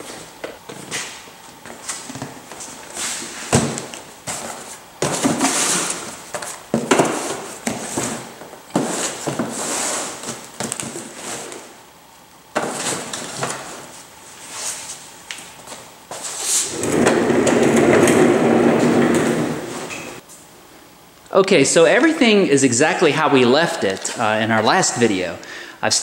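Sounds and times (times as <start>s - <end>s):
cardboard boxes scuffing and rustling: 1.7s - 11.7s.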